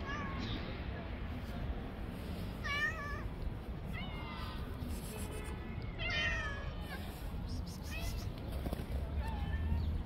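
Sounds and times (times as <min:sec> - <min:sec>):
cats meowing: 0:05.9 - 0:07.0.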